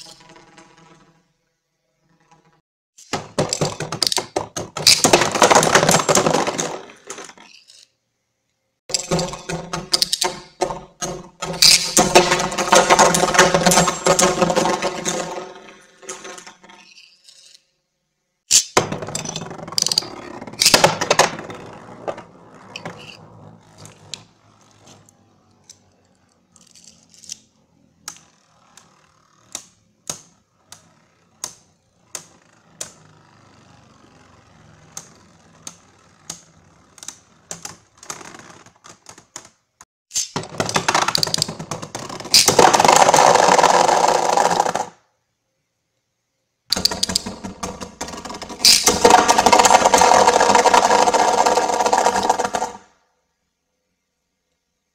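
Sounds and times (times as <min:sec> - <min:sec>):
spinning tops clashing: 0:08.9 - 0:17.7, 0:48.2 - 0:52.8.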